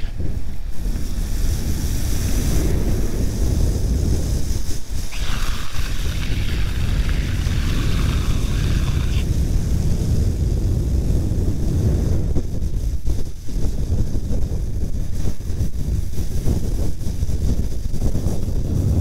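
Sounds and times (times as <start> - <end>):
high hiss: 0.0 - 10.5
wind buffeting microphone: 0.0 - 19.0.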